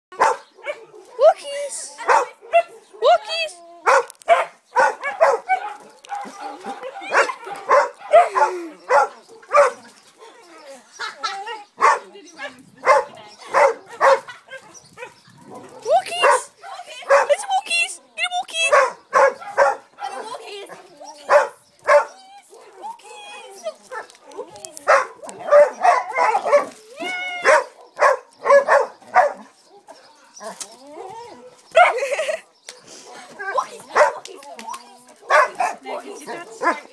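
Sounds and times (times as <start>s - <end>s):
dog barking excitedly: 0.1s - 9.8s, 11.8s - 17.9s, 18.5s - 22.8s, 24.9s - 26.8s, 27.4s - 29.5s, 31.7s - 32.0s, 33.7s - 34.2s, 35.2s - 36.9s.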